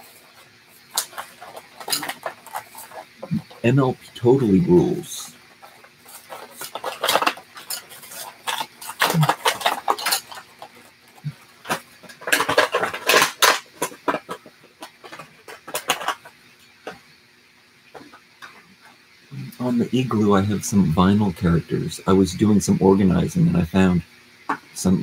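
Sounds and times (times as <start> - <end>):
toy package crinkling and rattling: 0.9 - 3.6, 5.6 - 11.0, 11.6 - 16.4.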